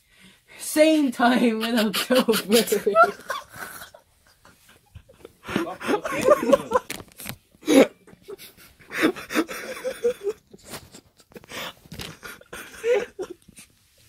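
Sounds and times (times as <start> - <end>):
people laughing: 1.4 - 7.0, 7.6 - 10.5, 12.0 - 13.4.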